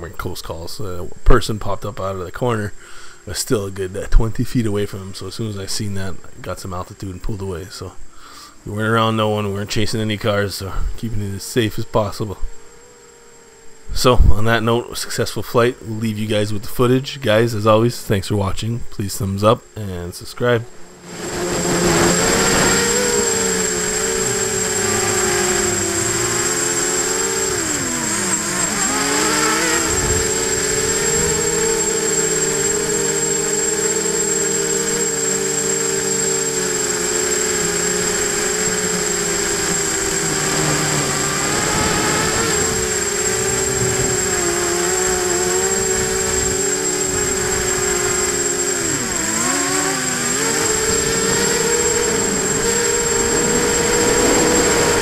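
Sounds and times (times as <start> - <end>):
steady high-pitched whine: 0.0 - 55.0
drone motors and propellers whining: 12.5 - 14.2, 20.7 - 55.0.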